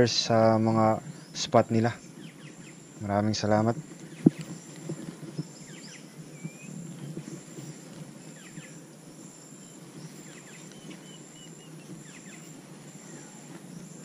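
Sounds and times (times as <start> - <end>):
insect trilling: 0.0 - 14.0
low rustle: 0.0 - 14.0
bird chirps: 4.0 - 8.9, 9.5 - 14.0.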